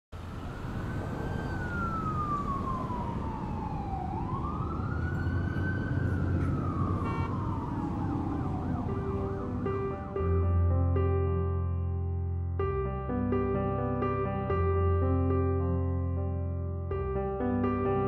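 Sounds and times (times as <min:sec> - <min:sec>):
siren wailing: 0:00.2 - 0:10.0.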